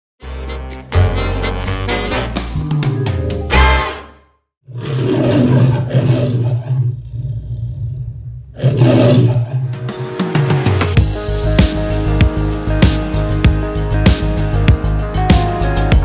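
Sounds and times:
lion roaring: 0:04.6 - 0:09.8.

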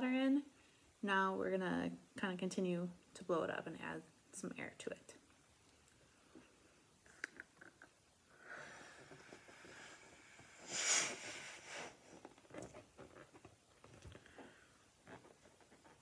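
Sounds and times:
breath blowing up balloon: 0:08.3 - 0:12.2.

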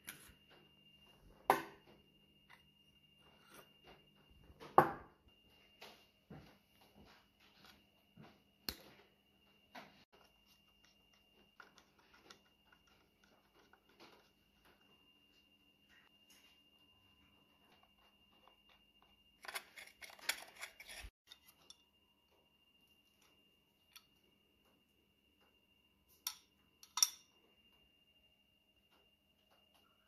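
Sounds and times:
metal parts clinking: 0:19.4 - 0:21.5.

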